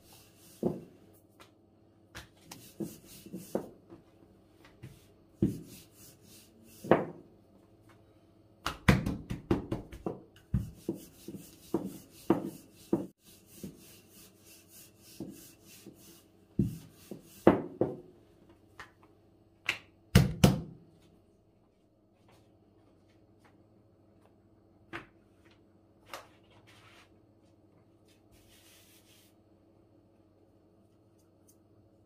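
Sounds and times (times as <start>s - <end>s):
soft rubbing of dough: 2.4s - 7.0s, 10.6s - 17.6s, 26.5s - 29.6s.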